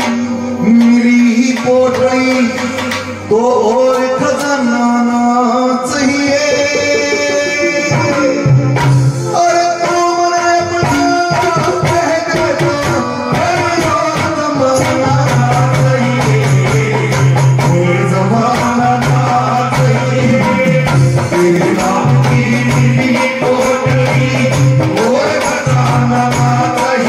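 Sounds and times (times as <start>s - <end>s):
hand drum beat: 0.0s - 3.2s, 9.9s - 27.0s
held melody notes: 0.0s - 11.6s
jingling percussion: 5.9s - 27.0s.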